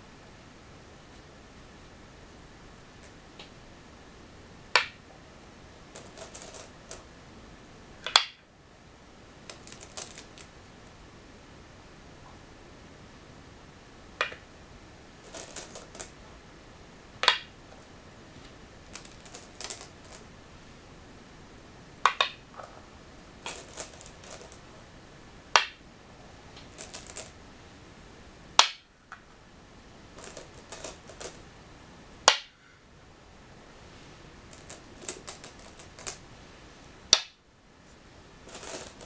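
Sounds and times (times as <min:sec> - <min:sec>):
stones clattering in bowl: 0:05.9 - 0:07.0, 0:09.5 - 0:10.5, 0:15.2 - 0:16.1, 0:18.9 - 0:20.2, 0:23.4 - 0:24.6, 0:26.7 - 0:27.4, 0:30.2 - 0:31.4, 0:34.5 - 0:36.2, 0:38.5 - 0:39.0
go stones clicking on wooden board: 0:05.9 - 0:07.1, 0:08.0 - 0:08.4, 0:09.5 - 0:10.5, 0:14.2 - 0:14.4, 0:15.3 - 0:16.1, 0:17.2 - 0:17.6, 0:18.9 - 0:20.2, 0:22.1 - 0:22.7, 0:23.4 - 0:24.6, 0:25.5 - 0:25.8, 0:26.6 - 0:27.4, 0:28.6 - 0:28.9, 0:30.2 - 0:31.4, 0:34.5 - 0:36.2, 0:38.5 - 0:39.0.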